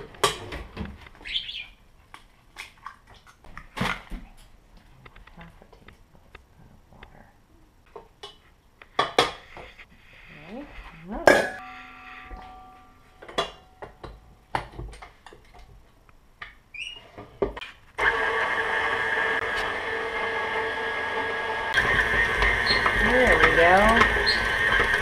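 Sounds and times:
stand mixer motor running: 0:18.0 - 0:25.0.

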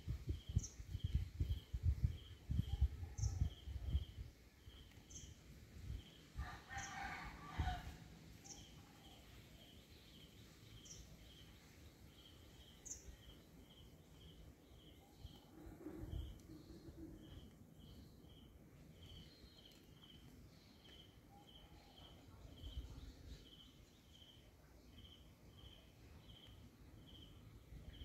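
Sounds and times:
wind on microphone rumbling: 0:00.0 - 0:04.4, 0:15.6 - 0:17.2
rooster crowing: 0:06.4 - 0:08.0
birds or insects chirping: 0:08.4 - 0:28.0.

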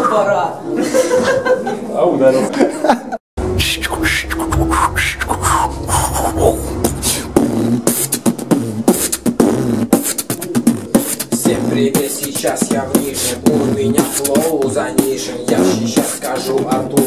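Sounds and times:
low hum: 0:03.4 - 0:10.9, 0:11.5 - 0:15.5
person beatboxing: 0:03.4 - 0:17.0.

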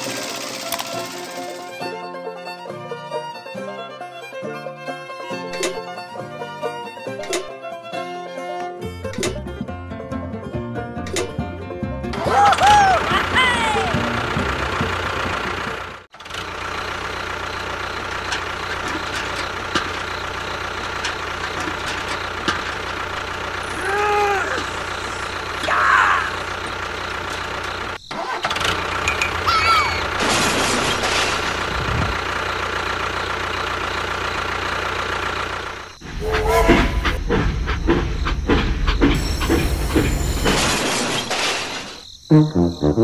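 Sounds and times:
toy train rattling on track: 0:00.0 - 0:01.9, 0:16.2 - 0:23.6
tractor engine idling: 0:00.0 - 0:03.5, 0:12.1 - 0:40.6.

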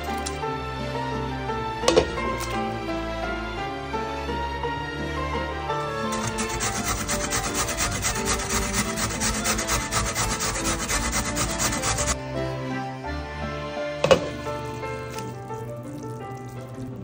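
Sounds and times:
beet grating on metal grater: 0:06.1 - 0:12.2.

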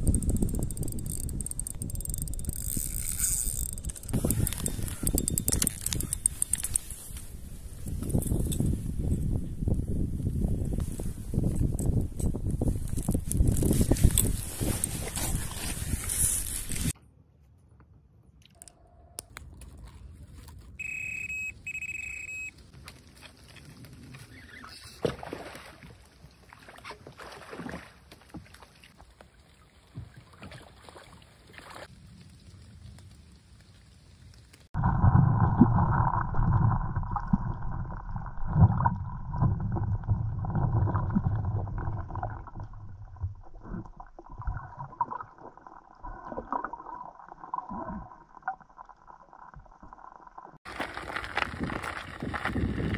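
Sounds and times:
scattered clicks: 0:00.0 - 0:06.9
short high beeps: 0:20.8 - 0:22.6
muffled underwater rumble: 0:34.8 - 0:46.7
underwater crackles and knocks: 0:34.8 - 0:50.5.

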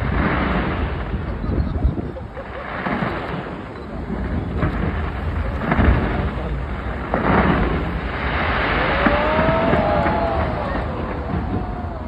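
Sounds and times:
fireworks bangs and crackling: 0:00.0 - 0:12.0
fireworks booming: 0:00.0 - 0:12.0
fireworks whistling: 0:00.0 - 0:12.0.

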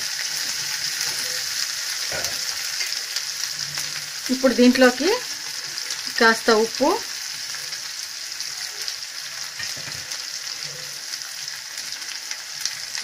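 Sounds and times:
vegetables sizzling in hot oil: 0:00.0 - 0:13.0.

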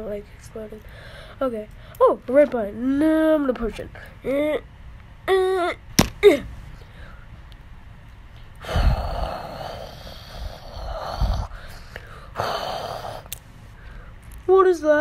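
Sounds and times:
breathy hissing vocal noise: 0:08.6 - 0:13.4.

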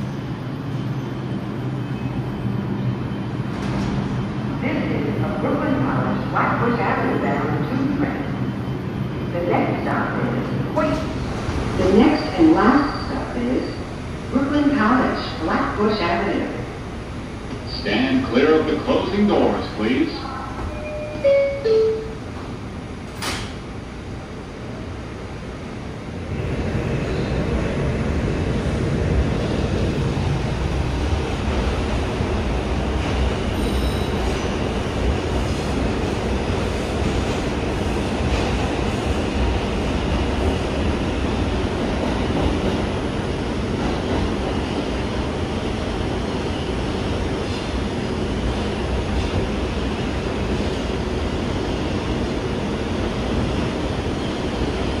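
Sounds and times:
train wheels rumbling on rail: 0:00.0 - 0:21.6, 0:22.2 - 0:55.0
train doors closing click: 0:03.5 - 0:04.2, 0:20.6 - 0:23.7.

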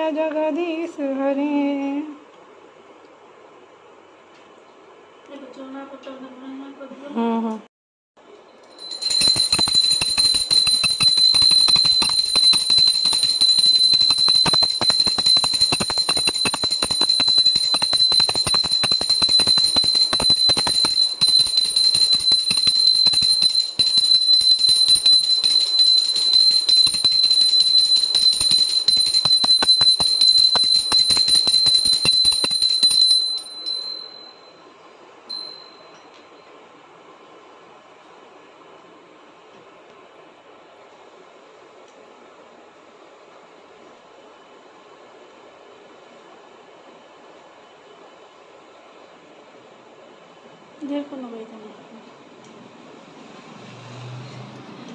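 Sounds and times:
hand bell ringing rapidly: 0:08.7 - 0:34.5, 0:35.3 - 0:35.9.

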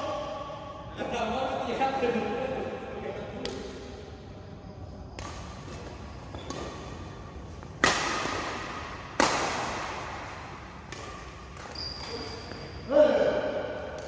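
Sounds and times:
racket hitting shuttlecock: 0:03.4 - 0:03.9, 0:05.1 - 0:12.6.

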